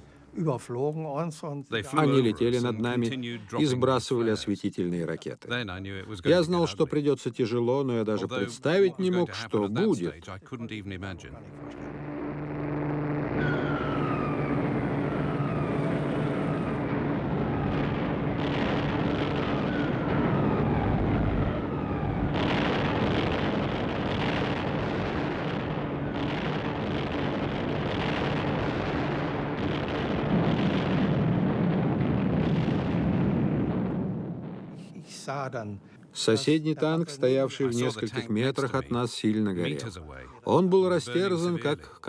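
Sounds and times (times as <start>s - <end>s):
bomber engines droning: 11.2s - 27.6s
bomb explosions barrage: 11.2s - 34.8s
falling bomb whistles: 11.6s - 23.6s.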